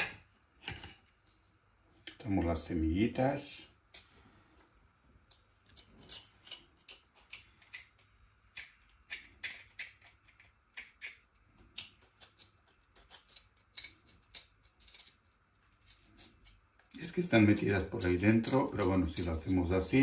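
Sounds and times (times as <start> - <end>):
faint clicks and scrapes: 3.9 - 19.6.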